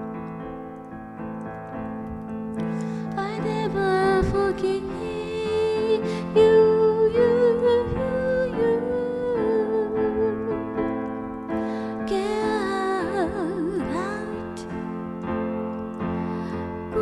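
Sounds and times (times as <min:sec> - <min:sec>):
electric piano chords: 0:00.0 - 0:17.0
person singing: 0:02.7 - 0:11.1, 0:11.9 - 0:14.7.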